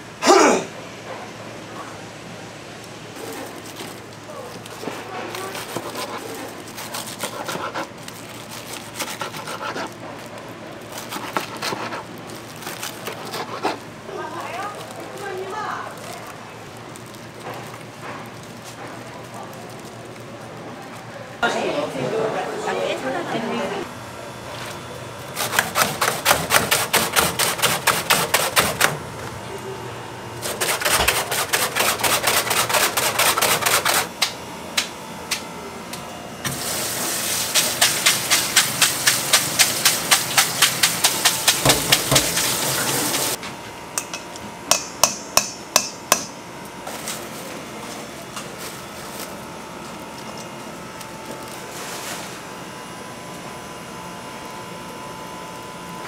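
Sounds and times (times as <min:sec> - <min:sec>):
utensil knocking on hard surface: 0:37.7 - 0:43.1.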